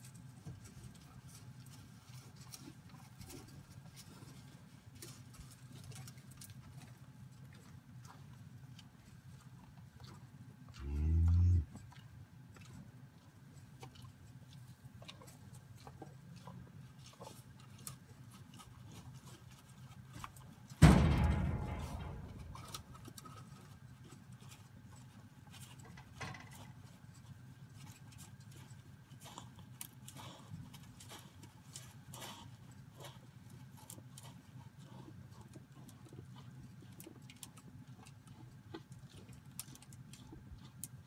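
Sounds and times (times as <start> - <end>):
clicks and crunches of barley: 0.0 - 20.8, 22.6 - 41.0
calf feeding: 0.0 - 41.0
ringing metal bang: 20.8 - 23.1.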